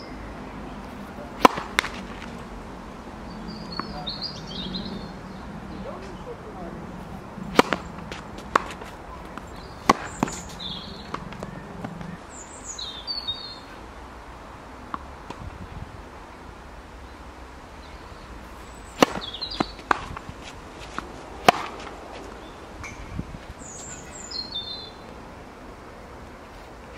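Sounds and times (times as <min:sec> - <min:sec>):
racquets hitting tennis ball: 0:00.7 - 0:02.7, 0:03.5 - 0:05.1, 0:05.7 - 0:12.2, 0:18.2 - 0:24.3
tennis ball bouncing on court: 0:01.0 - 0:02.5, 0:03.5 - 0:04.7, 0:07.4 - 0:12.2, 0:18.9 - 0:23.2.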